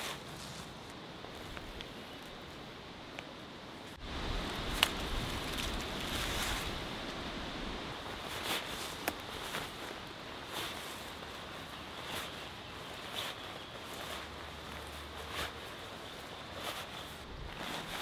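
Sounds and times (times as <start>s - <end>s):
camping gear rustling: 0.0s - 18.0s
outdoor background rush: 0.0s - 18.0s
camping gear clicks: 8.4s - 9.9s.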